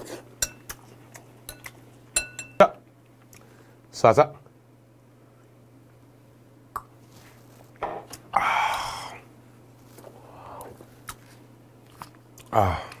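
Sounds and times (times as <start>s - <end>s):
man exhaling loudly: 8.3s - 9.2s, 12.5s - 13.0s.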